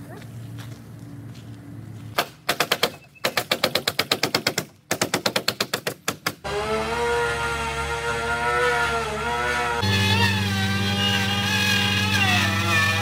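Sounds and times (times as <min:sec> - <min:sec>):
pneumatic nail gun firing: 0:02.2 - 0:06.5
steady motor drone: 0:06.4 - 0:13.0.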